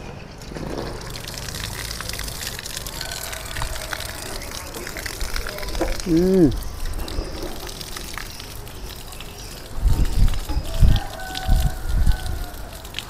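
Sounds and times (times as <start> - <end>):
water pouring onto soil: 0.4 - 13.0.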